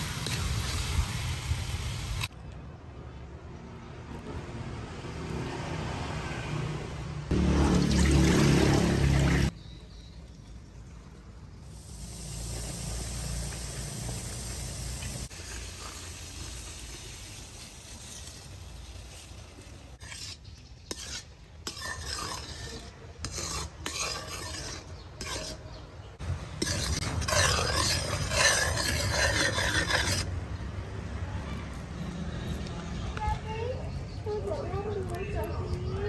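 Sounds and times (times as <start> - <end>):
metal ladle scraping a wok: 0.0 - 1.2, 15.2 - 30.4
light sizzle: 0.0 - 2.4, 10.2 - 22.4
liquid pouring rush: 7.3 - 9.6, 10.7 - 19.9.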